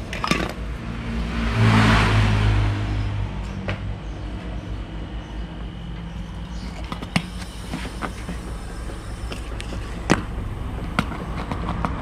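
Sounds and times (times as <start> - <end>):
refrigerator compressor humming: 4.0 - 12.0.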